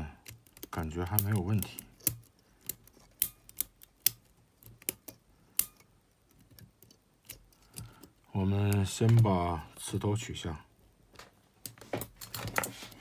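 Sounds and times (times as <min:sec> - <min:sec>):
tape mechanism clicking: 0:00.2 - 0:09.3.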